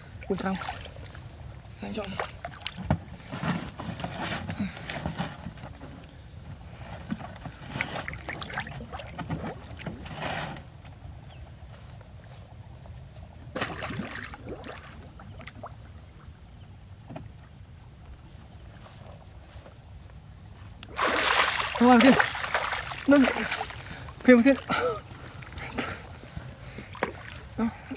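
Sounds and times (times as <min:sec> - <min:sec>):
river water splashing: 0:00.0 - 0:02.9, 0:07.8 - 0:09.9, 0:13.5 - 0:16.3, 0:20.8 - 0:27.9.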